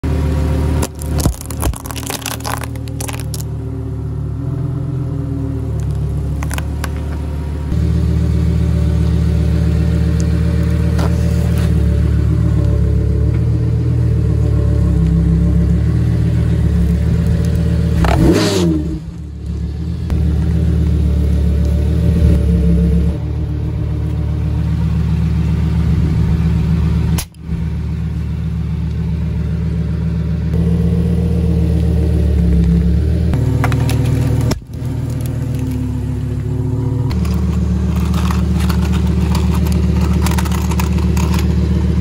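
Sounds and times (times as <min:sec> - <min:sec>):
car engine idling: 0:00.0 - 0:42.0
shells crunching under tyre: 0:00.8 - 0:03.6, 0:05.7 - 0:07.4, 0:33.4 - 0:42.0.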